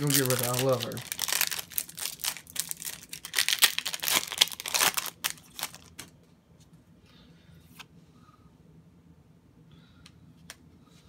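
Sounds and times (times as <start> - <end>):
foil wrapper crinkling and tearing: 0.0 - 6.1.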